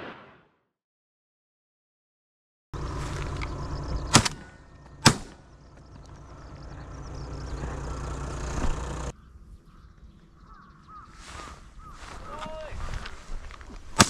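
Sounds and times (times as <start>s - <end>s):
shotgun shots: 0.0s - 0.5s, 4.1s - 5.5s
low background rumble: 2.8s - 10.9s.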